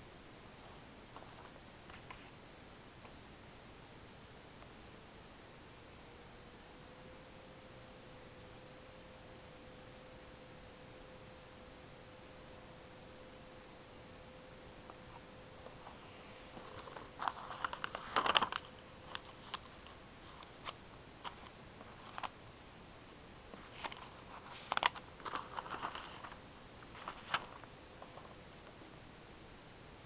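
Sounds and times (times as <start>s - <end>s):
faint steady hum: 0.0s - 30.0s
paper rustling and crackling: 15.8s - 22.3s, 23.6s - 28.4s.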